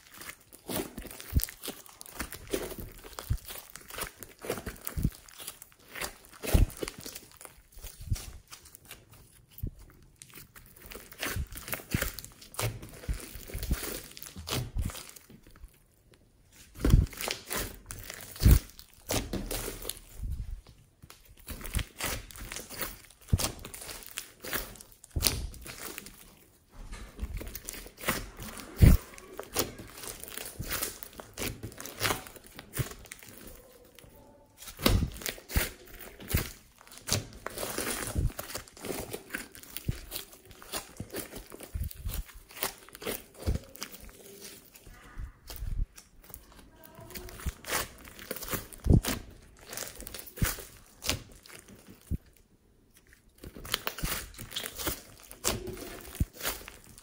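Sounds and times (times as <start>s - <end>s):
slime squeezed by hand: 0.0s - 15.6s, 27.3s - 46.4s, 47.1s - 52.2s.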